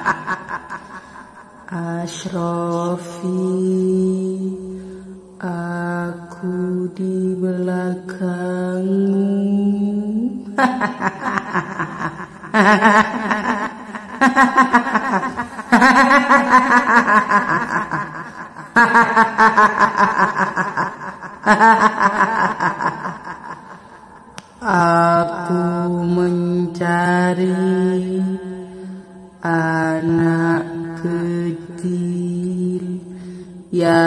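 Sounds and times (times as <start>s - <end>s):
woman cackling: 10.6s - 24.3s.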